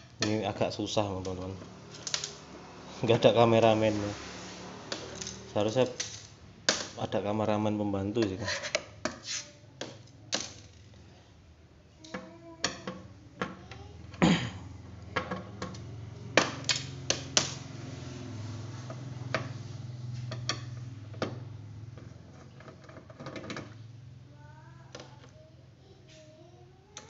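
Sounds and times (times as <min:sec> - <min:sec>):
faint low hum: 0:19.3 - 0:27.0.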